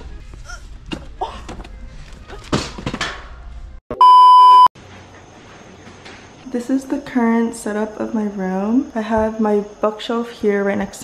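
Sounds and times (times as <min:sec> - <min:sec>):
loud electronic beep: 0:03.9 - 0:04.7.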